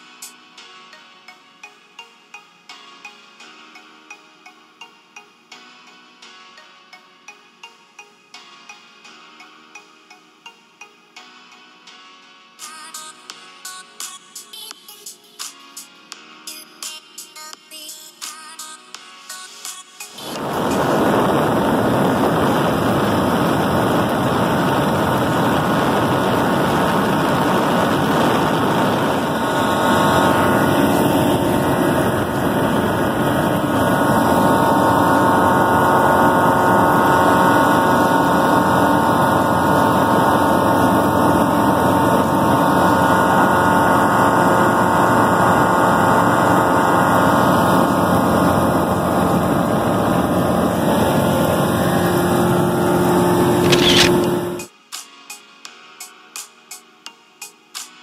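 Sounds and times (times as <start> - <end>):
wind rushing: 20.2 - 34.5
propeller plane engine: 20.2 - 54.7.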